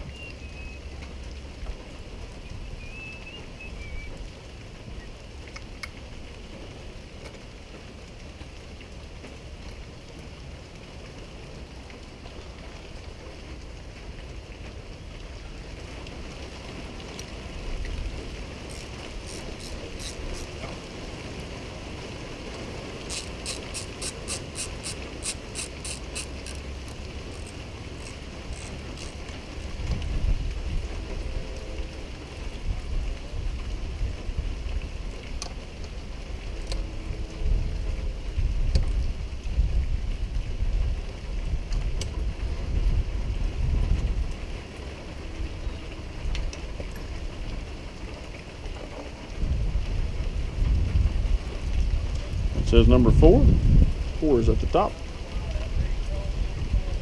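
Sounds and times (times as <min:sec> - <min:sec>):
socket ratchet clicking: 0:18.7 - 0:20.5, 0:23.1 - 0:29.2.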